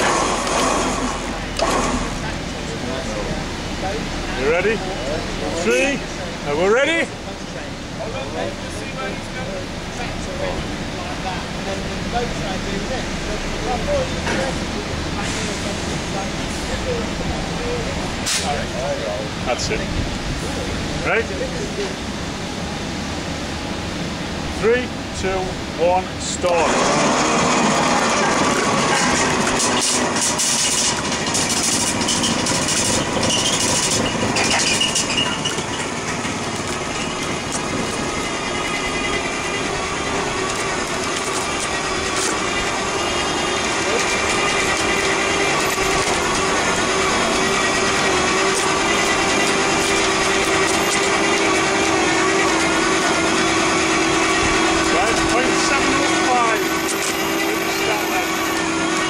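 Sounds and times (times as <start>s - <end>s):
machine whirring: 0.0s - 3.5s, 26.4s - 59.0s
dense rasping noise: 26.6s - 59.0s
brush scraping inside pipe: 27.2s - 59.0s.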